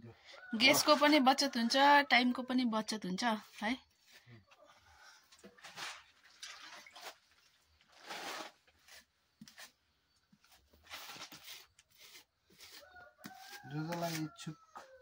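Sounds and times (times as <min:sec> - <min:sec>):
hand smoothing wet clay: 0:10.4 - 0:14.4.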